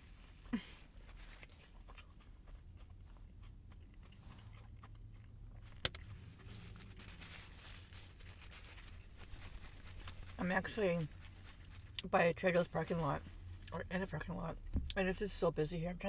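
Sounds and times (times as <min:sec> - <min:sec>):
low steady hum: 0:00.0 - 0:16.0
person chewing food: 0:00.2 - 0:07.2.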